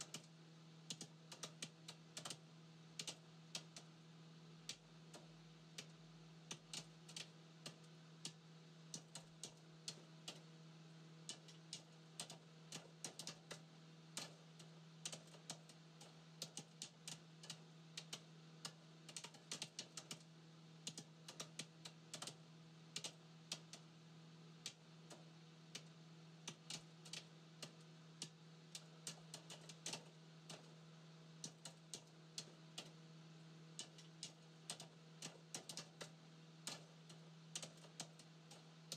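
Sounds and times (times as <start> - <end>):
low steady hum: 0.0 - 38.9
faint sharp clicks: 4.7 - 10.4, 14.2 - 22.4, 33.8 - 38.9.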